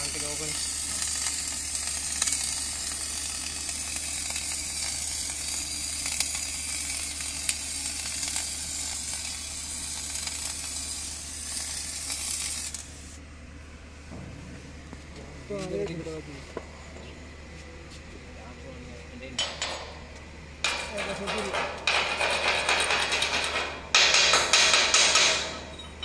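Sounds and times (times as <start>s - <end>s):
welding arc sizzling: 0.0s - 13.2s, 19.4s - 26.0s.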